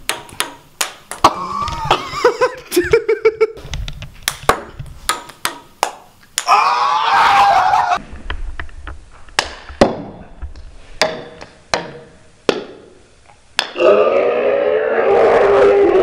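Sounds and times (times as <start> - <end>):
ping-pong ball clicking on surfaces: 0.0 - 1.3, 4.2 - 6.5
person crying out wavering: 1.2 - 2.0.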